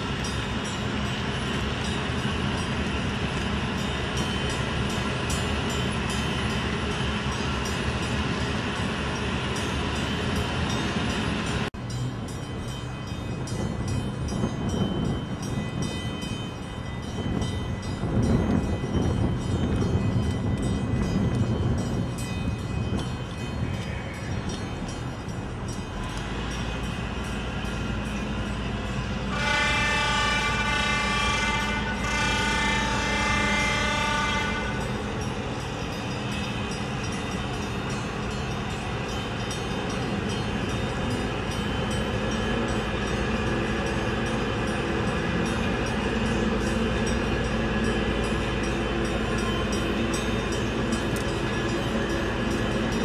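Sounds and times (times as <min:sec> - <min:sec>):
boat diesel engines droning: 0:00.0 - 0:53.0
boat horn blasts: 0:29.3 - 0:34.8.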